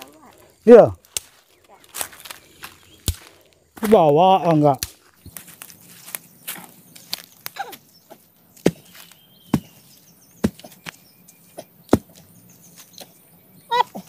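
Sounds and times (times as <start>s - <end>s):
axe chopping wood: 8.6s - 9.8s, 10.4s - 11.0s, 11.6s - 12.2s.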